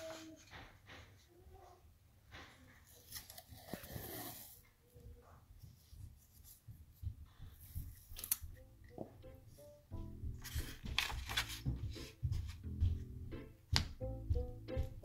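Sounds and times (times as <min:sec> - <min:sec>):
paper and tape rustling: 0:02.3 - 0:04.6, 0:05.6 - 0:08.6, 0:10.3 - 0:12.6.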